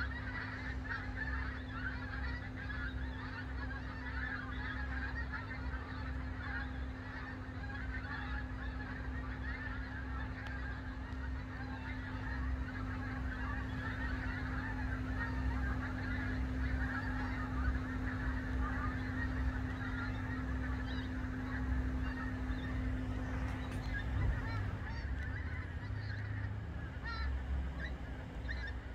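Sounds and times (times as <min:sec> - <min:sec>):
flock of geese honking: 0:00.0 - 0:28.9.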